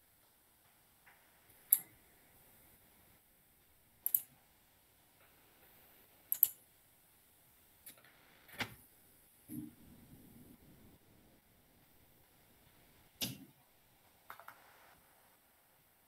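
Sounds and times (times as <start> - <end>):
computer mouse clicking: 4.0 - 4.3, 6.3 - 6.6.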